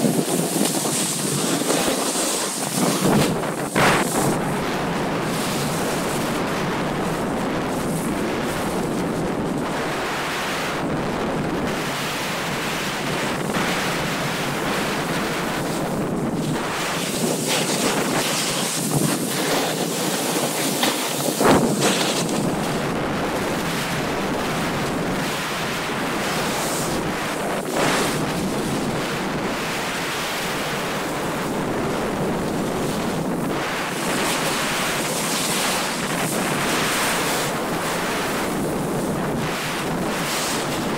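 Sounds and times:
skis sliding on packed snow: 0:00.0 - 0:06.3, 0:16.5 - 0:22.8, 0:33.6 - 0:38.6, 0:39.5 - 0:40.9
wind rushing over microphone: 0:00.0 - 0:40.9.

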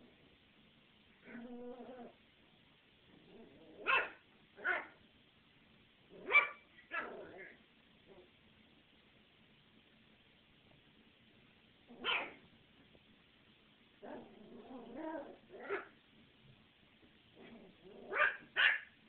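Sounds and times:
puppy barking: 0:03.8 - 0:05.0, 0:06.2 - 0:07.6, 0:11.9 - 0:12.4, 0:15.5 - 0:16.0, 0:18.0 - 0:19.0.

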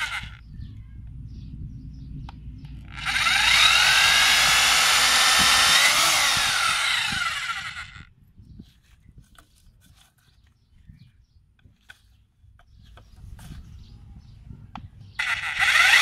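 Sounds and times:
electric drill boring through pipe: 0:00.0 - 0:00.4, 0:02.9 - 0:08.0, 0:15.2 - 0:16.0.

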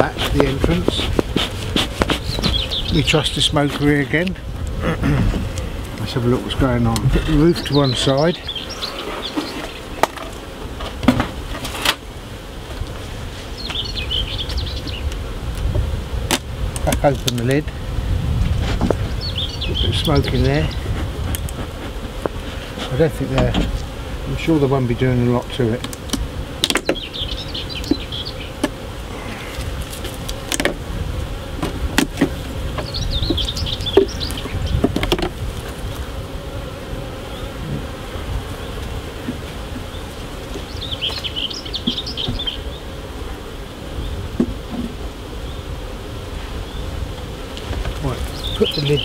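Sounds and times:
knocks on wooden hive parts: 0:00.0 - 0:02.7, 0:09.4 - 0:11.7, 0:21.3 - 0:23.8, 0:25.8 - 0:27.1, 0:27.8 - 0:28.8, 0:29.9 - 0:30.8, 0:31.6 - 0:35.4, 0:41.8 - 0:42.5, 0:44.3 - 0:45.0
honey bees buzzing: 0:00.0 - 0:49.0
small bird chirping: 0:02.2 - 0:03.1, 0:13.6 - 0:15.1, 0:19.0 - 0:20.8, 0:26.8 - 0:28.6, 0:32.8 - 0:34.8, 0:40.6 - 0:42.9, 0:48.2 - 0:49.0.

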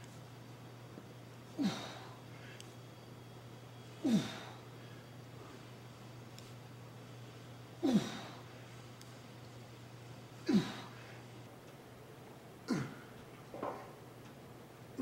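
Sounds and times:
low hum: 0:00.0 - 0:15.0
man grunting with effort: 0:01.6 - 0:02.1, 0:04.0 - 0:04.6, 0:07.8 - 0:08.4, 0:10.5 - 0:11.0.

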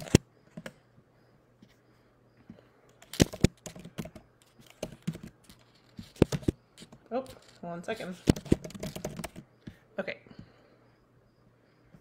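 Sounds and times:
laptop keyboard typing: 0:02.9 - 0:07.4, 0:08.0 - 0:09.6.

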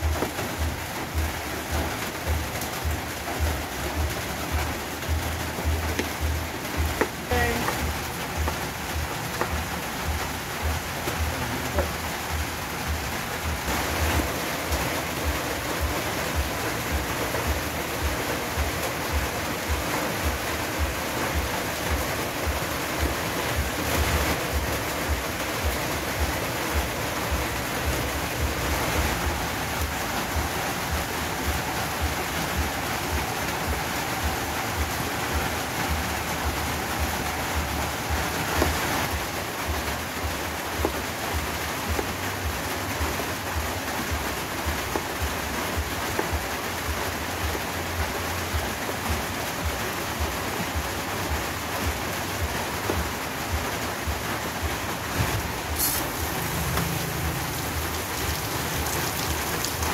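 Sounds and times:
steady rushing noise: 0:49.6 - 0:59.9.

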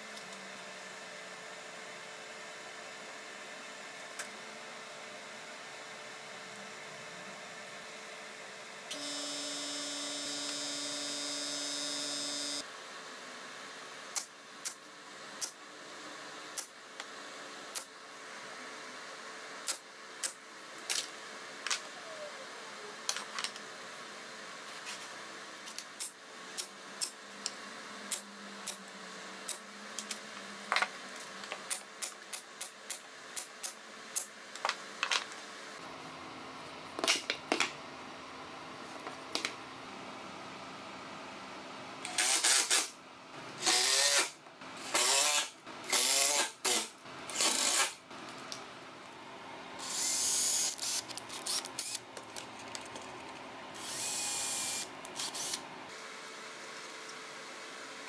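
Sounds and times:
machine whine: 0:08.9 - 0:12.6.

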